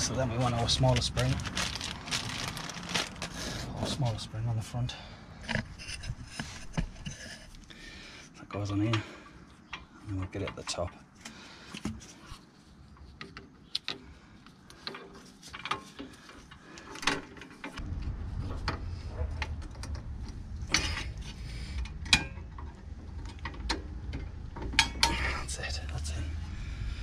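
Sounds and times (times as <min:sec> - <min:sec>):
steady low rumble: 0:17.8 - 0:27.0.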